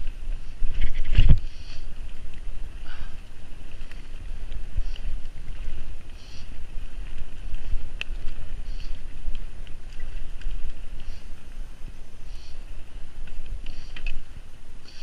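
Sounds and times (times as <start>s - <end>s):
bike clicks and rattles: 0.0s - 15.0s
bike tyres rumbling on dirt: 0.0s - 15.0s
wind buffeting microphone: 0.0s - 15.0s.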